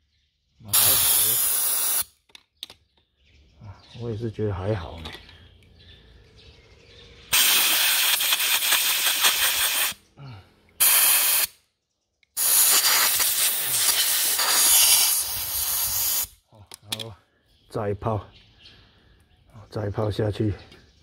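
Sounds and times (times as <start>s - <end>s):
aerosol foam cleaner hissing: 0.7s - 2.0s, 7.3s - 10.0s, 10.8s - 11.5s, 12.4s - 16.3s.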